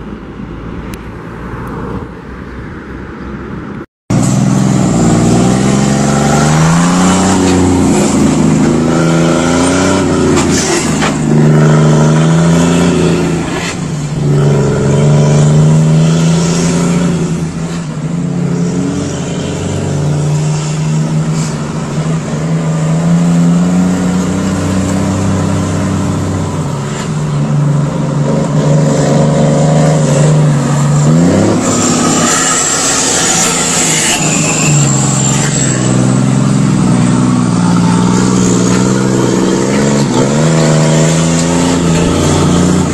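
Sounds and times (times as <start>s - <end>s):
truck diesel engine revving: 4.1s - 42.9s.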